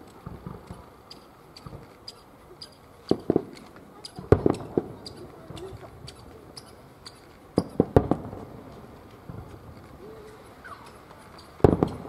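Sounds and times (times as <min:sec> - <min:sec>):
firework shells bursting: 0:00.1 - 0:12.0.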